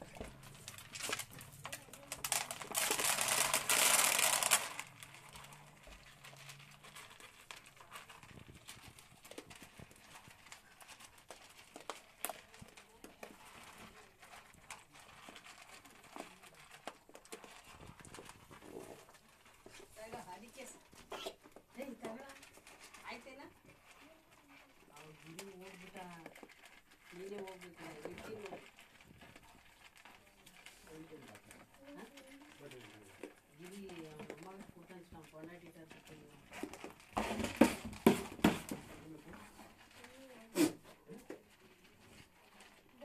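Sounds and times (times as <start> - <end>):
goats chewing corn: 0.0 - 43.0
hooves knocking against tub: 33.2 - 39.8.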